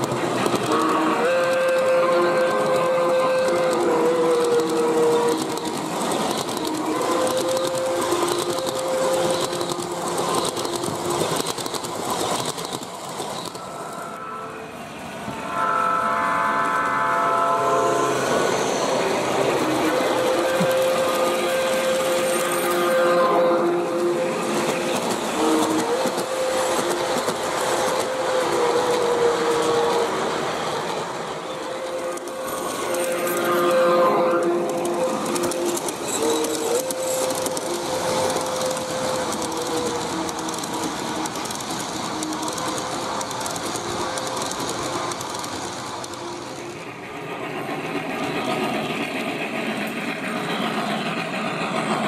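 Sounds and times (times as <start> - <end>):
wheels clicking over rail: 0.0 - 13.6
model train wheels clattering: 0.0 - 13.8, 23.5 - 52.0.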